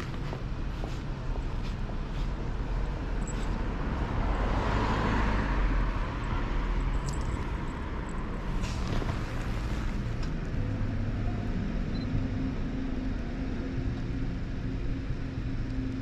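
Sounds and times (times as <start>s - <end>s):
traffic rumble: 0.0s - 16.0s
vehicle passing by: 1.6s - 11.7s.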